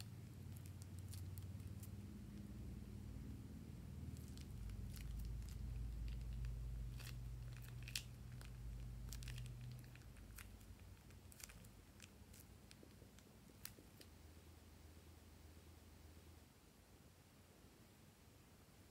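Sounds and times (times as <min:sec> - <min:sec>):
plastic piping bag crinkling: 0:00.0 - 0:02.5, 0:04.0 - 0:14.1
low rumble: 0:00.6 - 0:12.0.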